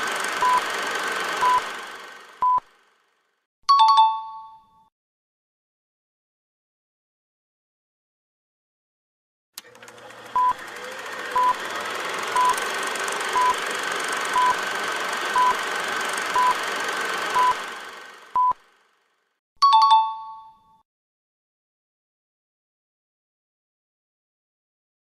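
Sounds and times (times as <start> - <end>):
short electronic beeps: 2.4 - 2.6, 17.4 - 17.6, 18.4 - 18.6.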